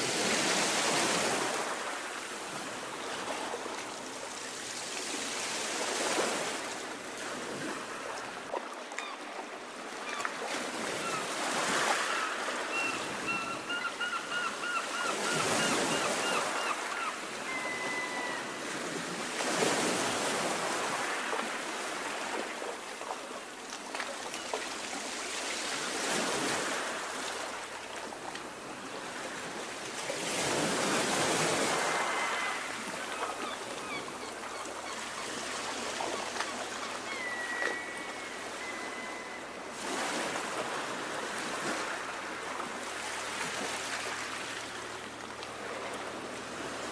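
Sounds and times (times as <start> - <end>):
small waves lapping: 0.0 - 46.9
bird calling: 11.9 - 18.6, 31.8 - 35.4, 36.0 - 39.5.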